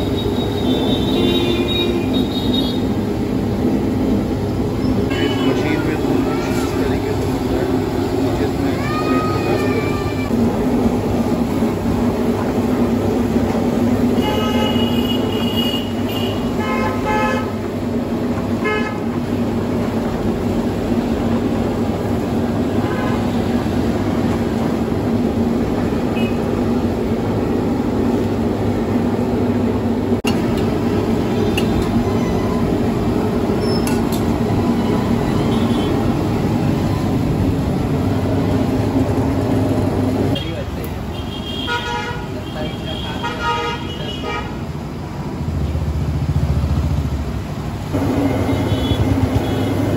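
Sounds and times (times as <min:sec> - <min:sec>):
vehicle horns honking: 0:00.0 - 0:02.9, 0:05.1 - 0:05.8, 0:14.2 - 0:17.6, 0:26.1 - 0:26.5, 0:34.8 - 0:36.0, 0:40.3 - 0:44.6, 0:48.4 - 0:49.9.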